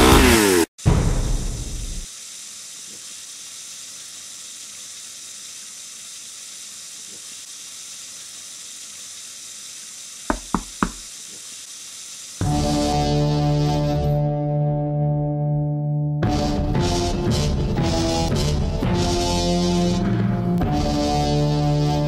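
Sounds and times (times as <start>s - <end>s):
tap water running into sink: 8.5s - 11.5s
quick knocks: 10.3s - 11.1s.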